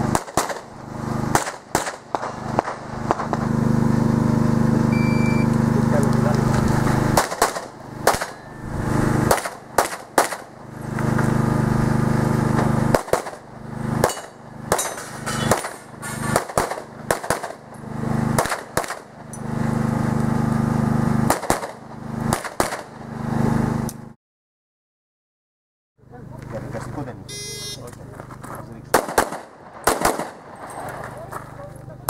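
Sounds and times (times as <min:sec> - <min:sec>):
steady low hum: 0:00.0 - 0:22.3
pistol shots: 0:00.1 - 0:03.4, 0:07.0 - 0:10.6, 0:12.9 - 0:17.7, 0:18.4 - 0:19.1, 0:21.3 - 0:23.0, 0:28.9 - 0:31.2.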